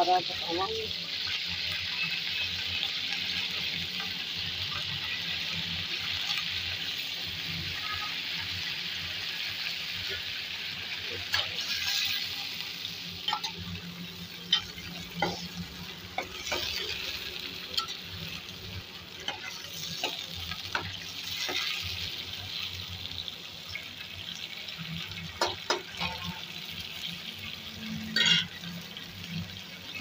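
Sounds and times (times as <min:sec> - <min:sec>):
eggplants sizzling in hot oil: 0:00.0 - 0:30.0
metal spatula scraping pot: 0:14.4 - 0:18.3, 0:25.4 - 0:26.5, 0:28.1 - 0:28.6.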